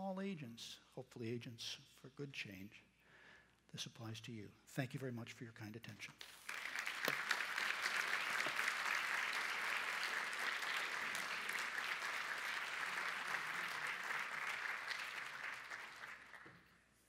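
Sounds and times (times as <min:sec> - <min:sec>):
audience applauding: 0:06.2 - 0:16.7.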